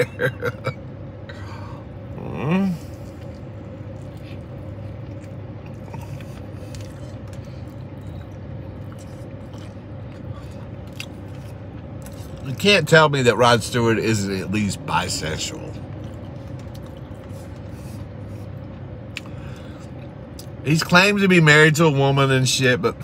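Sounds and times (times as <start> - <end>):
short hummed vocal sound: 0.0 - 4.8, 5.6 - 8.5
man chewing food: 2.7 - 12.6, 15.8 - 20.6.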